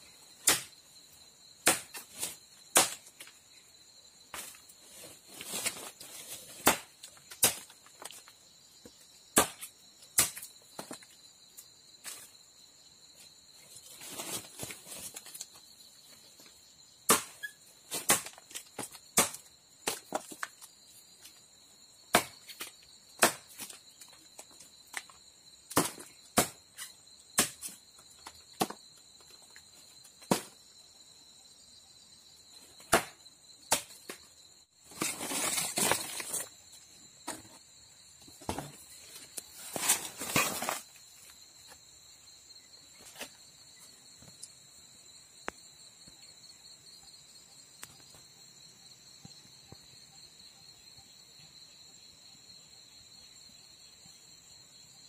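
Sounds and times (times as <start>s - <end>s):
high insect drone: 0.0s - 55.0s
machete chopping into bark: 0.4s - 0.7s, 1.6s - 3.1s, 6.5s - 7.7s, 9.4s - 10.5s, 17.1s - 20.3s, 22.1s - 23.8s, 25.7s - 27.8s, 30.3s - 30.6s, 32.8s - 34.2s.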